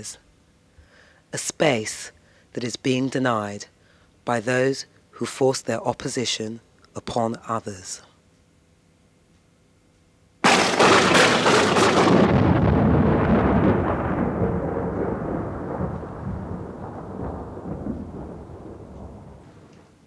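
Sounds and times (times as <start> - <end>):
thunder crack and rumble: 10.4 - 19.8.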